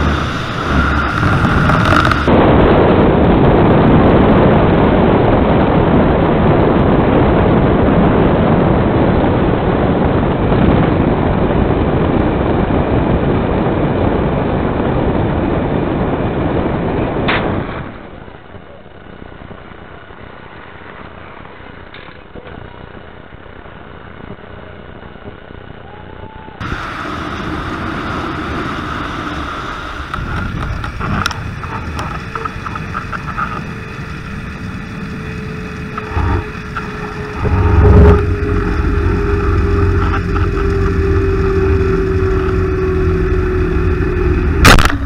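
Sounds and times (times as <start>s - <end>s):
trolley running along cable: 0.0s - 2.4s, 26.6s - 45.0s
wind buffeting microphone: 0.0s - 18.3s, 26.6s - 45.0s.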